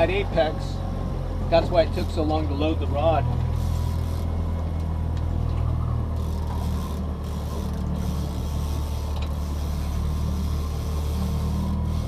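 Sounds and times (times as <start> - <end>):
outboard motor humming: 0.0 - 12.0
fishing reel whirring and clicking: 3.5 - 4.6, 6.1 - 12.0.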